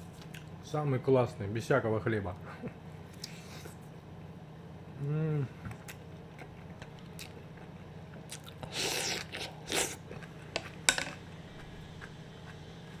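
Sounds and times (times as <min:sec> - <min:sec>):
chewing salad: 0:00.1 - 0:00.6, 0:05.7 - 0:13.0.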